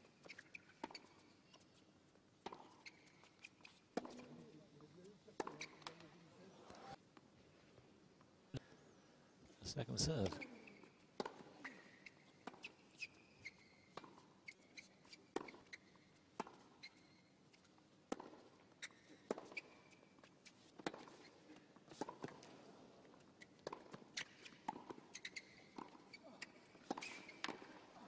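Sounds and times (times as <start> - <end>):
shoes squeaking on court: 0.0 - 7.0, 9.9 - 28.0
ball bouncing: 5.4 - 6.0, 23.6 - 24.0, 26.8 - 27.8.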